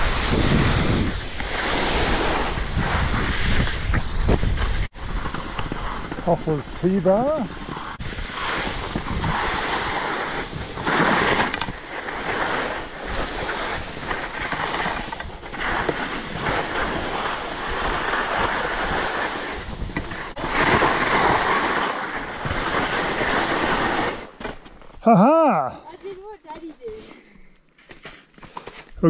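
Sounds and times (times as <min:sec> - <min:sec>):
wind buffeting microphone: 0:00.0 - 0:06.6, 0:07.2 - 0:14.1
skis scraping over snow: 0:00.0 - 0:24.9, 0:25.8 - 0:27.3.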